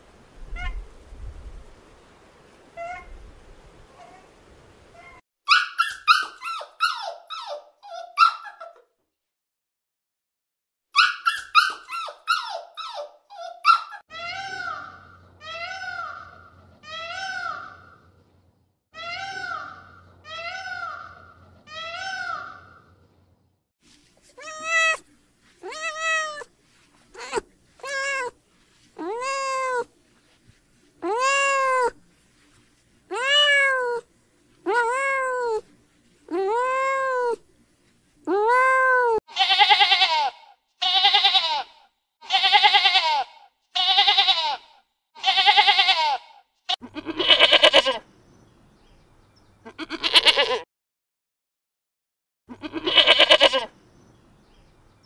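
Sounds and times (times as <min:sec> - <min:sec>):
cat meowing: 0:05.0 - 0:05.2, 0:24.4 - 0:25.0, 0:25.6 - 0:26.5, 0:27.2 - 0:28.4, 0:29.0 - 0:29.9, 0:33.1 - 0:34.0, 0:47.0 - 0:48.0, 0:52.5 - 0:53.7
goat bleating: 0:19.0 - 0:22.7, 0:24.3 - 0:26.5, 0:27.1 - 0:28.4, 0:29.0 - 0:29.9, 0:31.0 - 0:32.0, 0:39.0 - 0:48.0, 0:49.6 - 0:50.6, 0:52.5 - 0:53.7.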